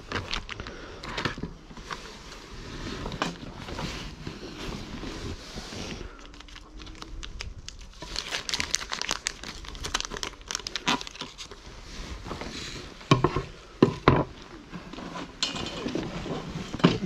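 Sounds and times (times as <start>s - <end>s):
foil pouch crinkling: 0.0s - 0.8s, 6.0s - 11.8s.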